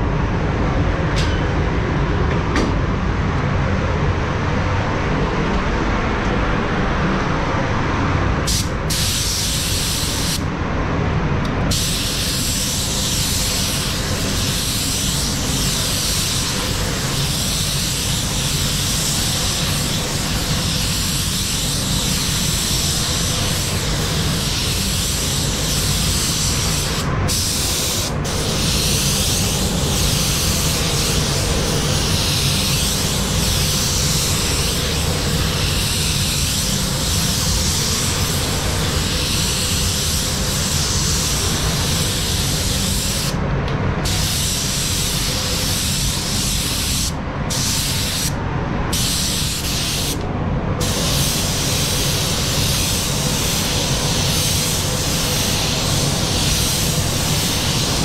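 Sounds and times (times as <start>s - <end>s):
steady low rumble: 0.0s - 58.0s
paint spray gun hissing: 8.5s - 10.4s, 11.7s - 43.4s, 44.0s - 48.4s, 49.0s - 50.2s, 50.8s - 58.0s.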